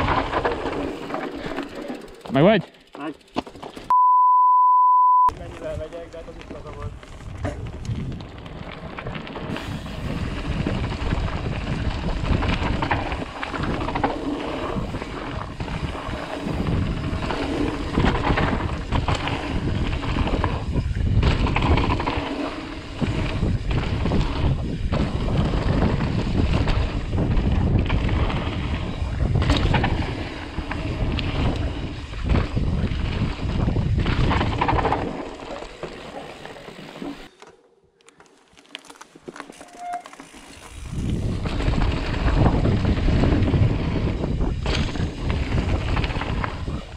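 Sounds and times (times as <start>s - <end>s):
bike rattling and knocking: 0.0s - 3.9s, 5.5s - 36.5s, 38.6s - 46.9s
wind buffeting microphone: 5.4s - 35.3s, 40.6s - 46.9s
tyres rumbling on dirt: 5.4s - 37.3s, 39.2s - 46.9s.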